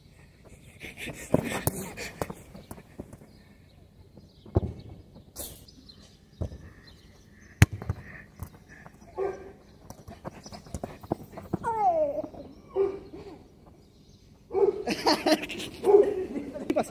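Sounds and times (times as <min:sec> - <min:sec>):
football kicks thudding: 0:04.4 - 0:05.0, 0:07.6 - 0:08.5.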